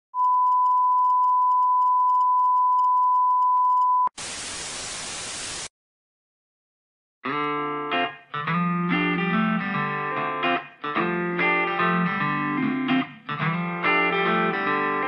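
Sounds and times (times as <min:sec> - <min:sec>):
steady high test tone beep: 0:00.2 - 0:04.1
tv static hiss: 0:04.2 - 0:05.7.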